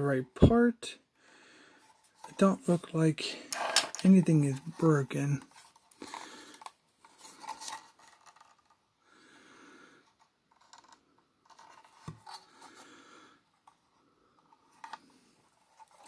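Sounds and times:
soft breathing: 0:01.2 - 0:02.3, 0:05.9 - 0:16.0.

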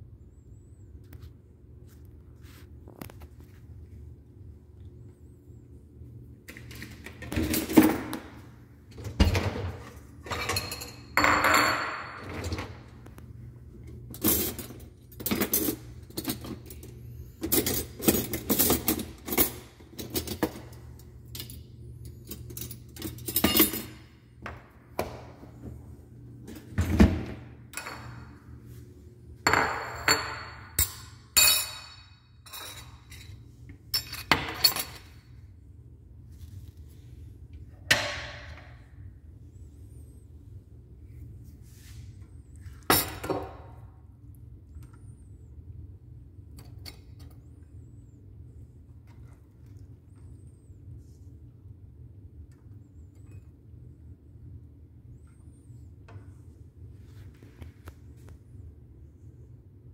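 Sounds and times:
steady low hum: 0:00.0 - 0:59.9
dishes clinking: 0:09.1 - 0:12.8, 0:29.5 - 0:35.2.

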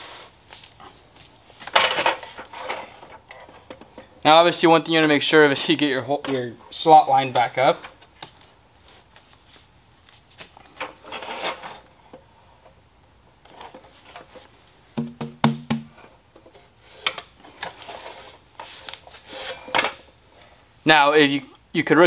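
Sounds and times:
vinyl roll rubbing and turning: 0:00.0 - 0:03.7, 0:04.5 - 0:12.0, 0:16.5 - 0:19.9.

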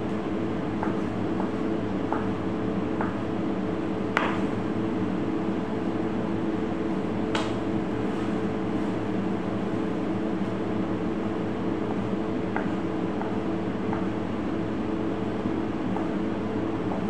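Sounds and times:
ventilation hum: 0:00.0 - 0:17.0.

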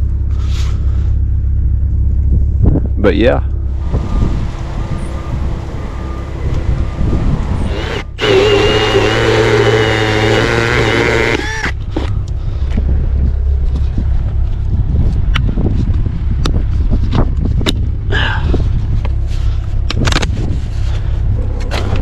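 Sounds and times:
wind noise: 0:00.7 - 0:22.0
whining squealing tones: 0:03.5 - 0:12.3
machine engine running: 0:03.5 - 0:12.7.

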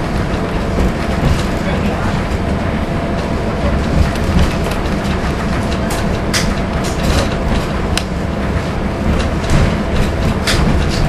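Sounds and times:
train engine and wheels rumbling: 0:00.0 - 0:11.0
clicks and rattles: 0:09.1 - 0:11.0.

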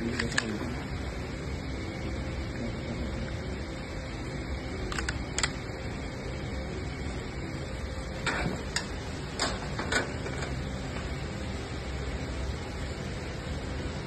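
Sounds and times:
steady background hiss: 0:00.0 - 0:14.0.

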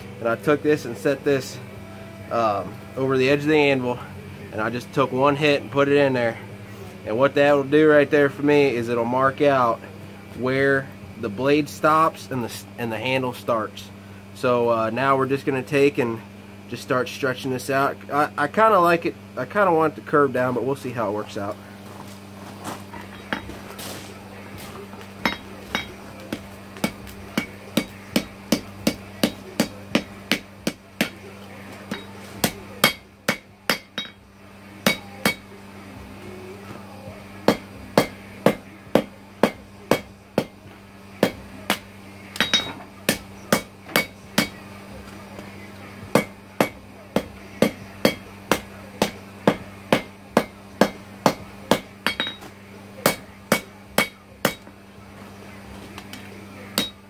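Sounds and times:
hammer striking steel on anvil: 0:23.0 - 0:23.5, 0:25.2 - 0:31.2, 0:31.9 - 0:34.2, 0:34.8 - 0:35.5, 0:37.5 - 0:40.6, 0:41.2 - 0:44.6, 0:46.1 - 0:54.7, 0:56.8 - 0:57.0.

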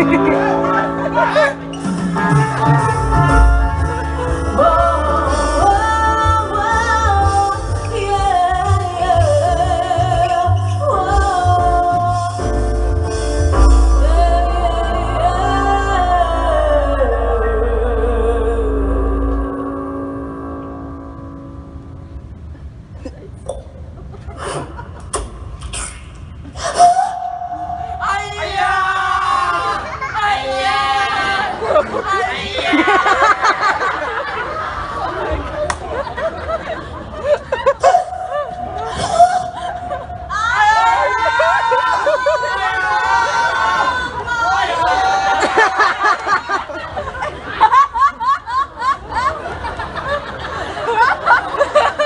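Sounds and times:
audience laughing and gasping: 0:00.0 - 0:03.5, 0:22.5 - 0:28.1, 0:28.9 - 0:52.0.

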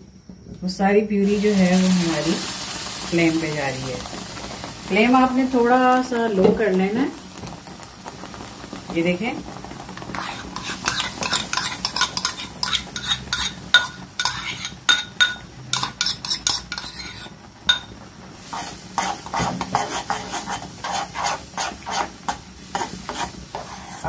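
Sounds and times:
utensil scraping pan bottom: 0:10.1 - 0:17.9, 0:18.5 - 0:24.0.

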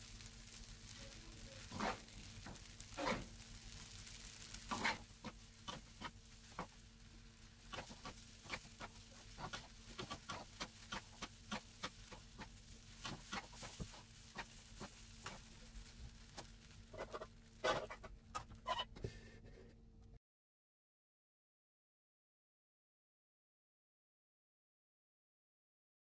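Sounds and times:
faint steady hum: 0:00.0 - 0:20.2
utensils scraping in a wok: 0:00.2 - 0:19.7.

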